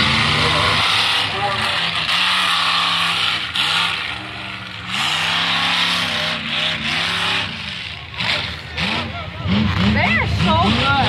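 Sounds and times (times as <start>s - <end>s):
truck engine revving: 0.0s - 11.0s.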